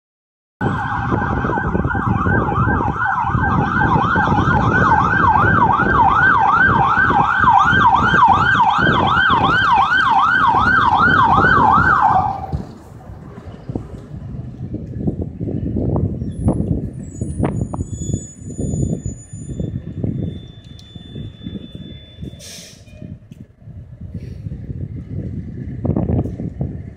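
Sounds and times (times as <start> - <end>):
fire engine siren yelping: 0.6 - 12.8, 17.0 - 23.2
truck engine rumble: 0.6 - 26.9.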